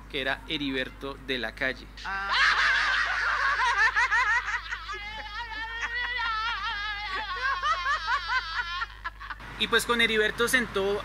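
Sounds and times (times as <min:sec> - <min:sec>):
high-pitched laughter: 0:02.0 - 0:09.4.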